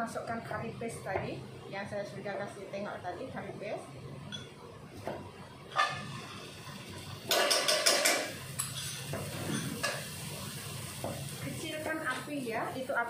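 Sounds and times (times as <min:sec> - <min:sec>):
metal spoon knocking on wok: 0:07.3 - 0:08.8.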